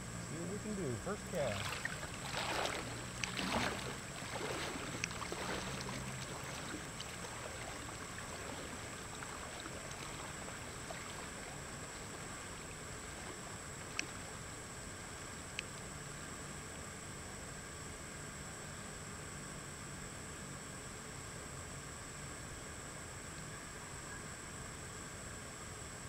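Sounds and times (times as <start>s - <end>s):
legs wading and splashing: 0.8s - 14.5s
river rushing: 1.2s - 13.4s.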